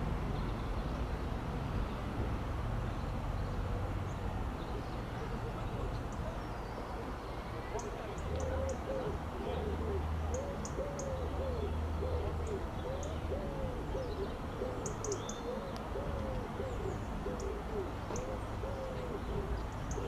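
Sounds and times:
pigeon cooing: 6.9 - 20.0.

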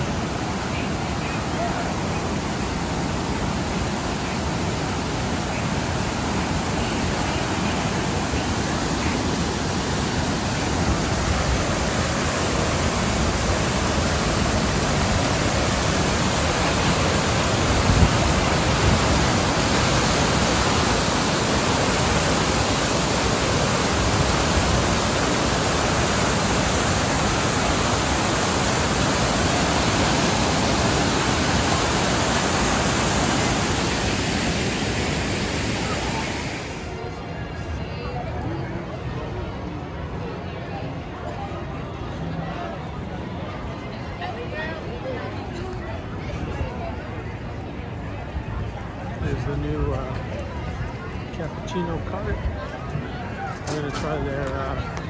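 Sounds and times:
waterfall rushing over rocks: 0.0 - 37.1.

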